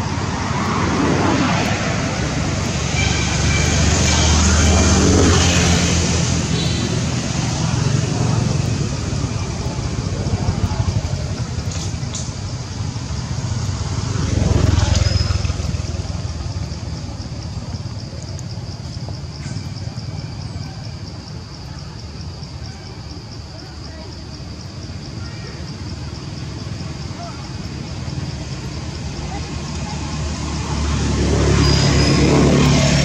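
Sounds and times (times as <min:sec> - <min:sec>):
high rapid insect-like pulsing: 0:00.0 - 0:33.0
vehicles passing: 0:00.0 - 0:33.0.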